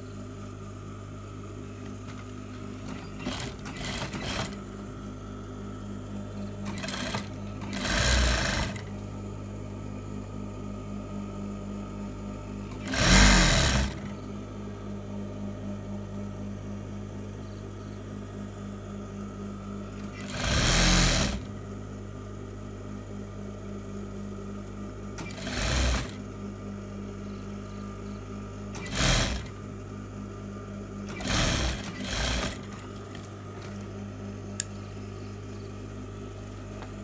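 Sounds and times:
steady low hum: 0.0s - 37.0s
sewing machine stitching: 2.8s - 4.6s, 6.6s - 8.9s, 12.7s - 14.1s, 20.1s - 21.5s, 25.2s - 26.2s, 28.8s - 29.6s, 31.1s - 32.8s.

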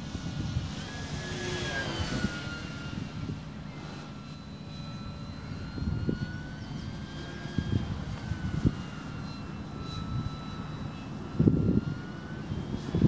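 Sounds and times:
model plane motor whine: 0.0s - 13.0s
wind noise on microphone: 0.0s - 13.0s.

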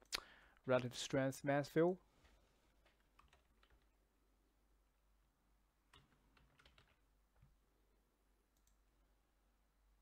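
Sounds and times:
faint keyboard typing: 2.2s - 4.0s, 5.9s - 7.6s, 8.5s - 9.0s.

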